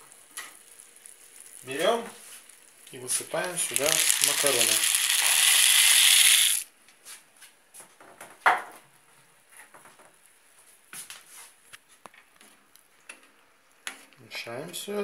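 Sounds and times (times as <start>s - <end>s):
dry macaroni pouring into pot: 0.0s - 6.7s.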